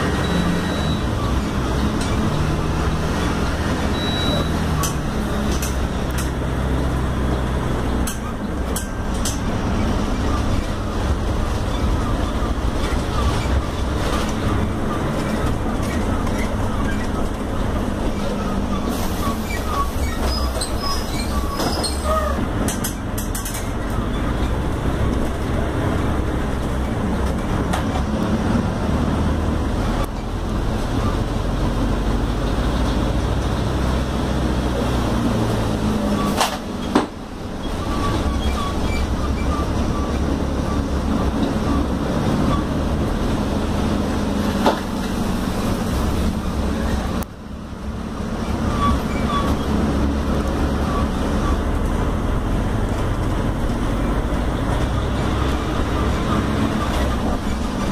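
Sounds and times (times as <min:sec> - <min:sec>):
bus diesel engine: 0:00.0 - 0:57.9
road rumble: 0:00.0 - 0:57.9.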